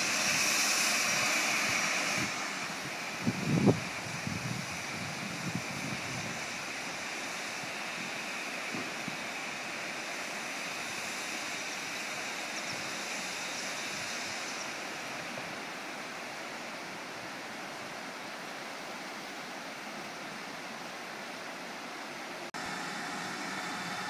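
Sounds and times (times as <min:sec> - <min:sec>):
river water rushing over rocks: 0:13.6 - 0:24.0.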